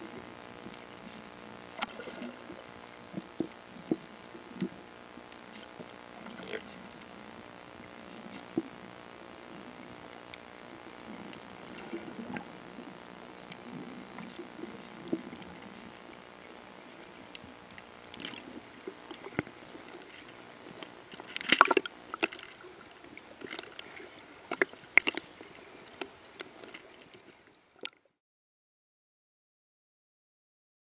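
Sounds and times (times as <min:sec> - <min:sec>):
faint hiss: 0:00.0 - 0:27.8
water sloshing and splashing: 0:00.6 - 0:07.3, 0:11.0 - 0:12.7, 0:13.5 - 0:28.0.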